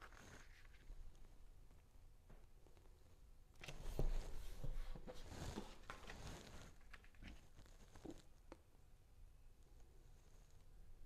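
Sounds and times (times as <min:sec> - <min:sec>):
papery rustling and scraping: 0:03.6 - 0:08.2.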